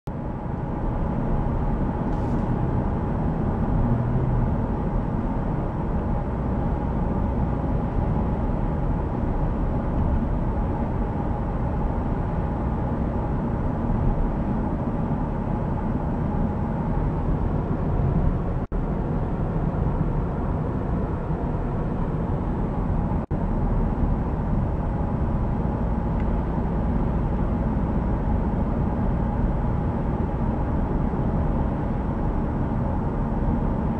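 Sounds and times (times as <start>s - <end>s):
car cabin road noise: 0.1s - 33.9s.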